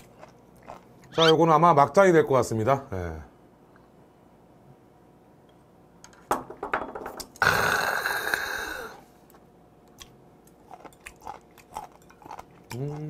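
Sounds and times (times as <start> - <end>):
man's raspy exhale: 7.4 - 9.0.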